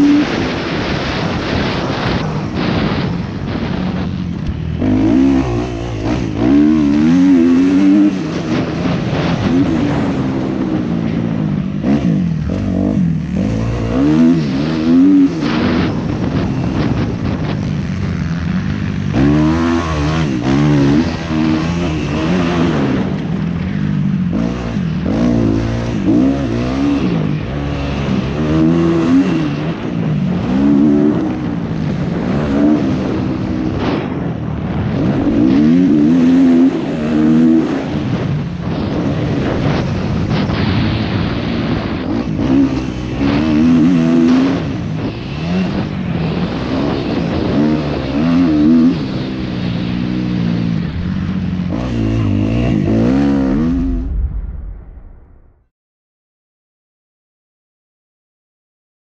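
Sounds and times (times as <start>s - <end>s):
motorcycle engine revving: 0.0s - 54.5s.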